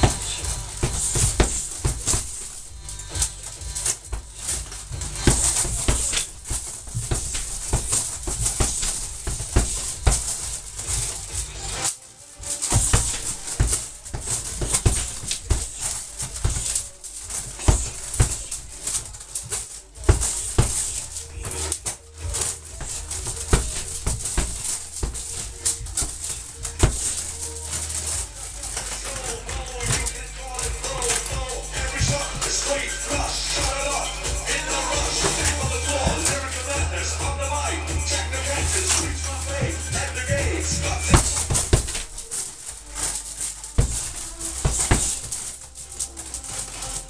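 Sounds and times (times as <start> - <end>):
gloves punching heavy bag: 0.0 - 37.4, 38.5 - 47.0
background music: 0.0 - 47.0.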